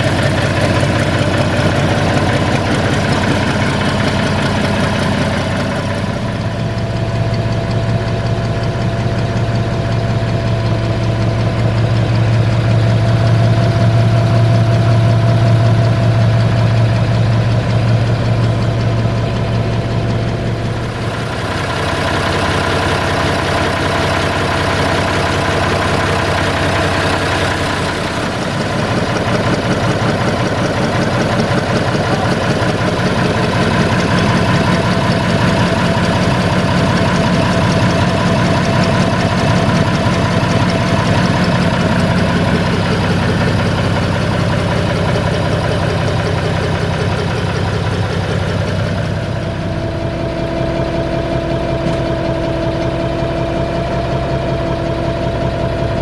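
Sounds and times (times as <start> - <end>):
diesel tractor engine idling: 0.0 - 56.0.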